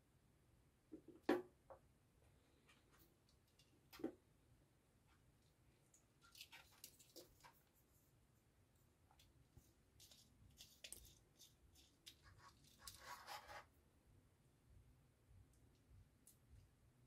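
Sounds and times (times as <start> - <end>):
rustling and scraping: 6.2 - 13.8.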